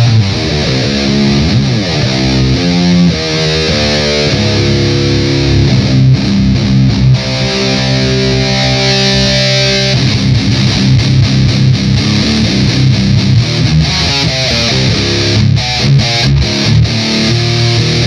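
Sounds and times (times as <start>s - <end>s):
distorted electric guitar riffs: 0.0s - 18.0s.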